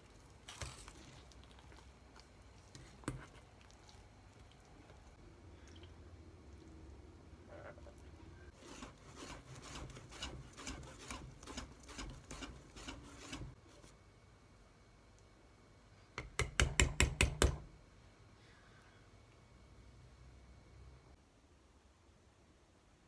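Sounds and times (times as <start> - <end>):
whisk scraping metal bowl: 8.5 - 13.6.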